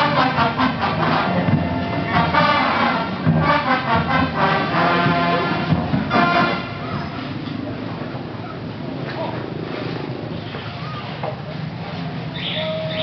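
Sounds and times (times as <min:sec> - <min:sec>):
brass instruments: 0:00.0 - 0:07.4
marching band playing: 0:00.0 - 0:08.3.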